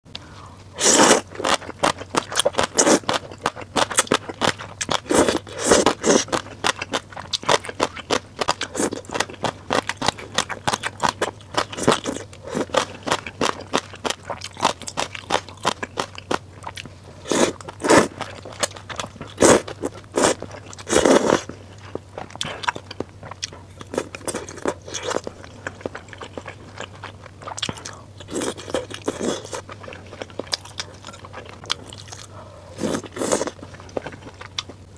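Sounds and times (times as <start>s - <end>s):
chewing: 0.2s - 34.9s
slurping noodles: 0.8s - 1.3s, 5.1s - 6.4s, 17.2s - 18.4s, 19.4s - 21.5s, 32.7s - 34.2s.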